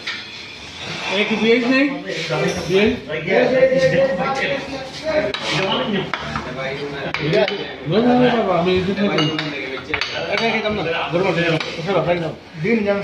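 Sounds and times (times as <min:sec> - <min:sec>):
plates and cutlery clinking: 0:00.0 - 0:01.3, 0:03.8 - 0:11.9
voices talking: 0:00.8 - 0:13.0.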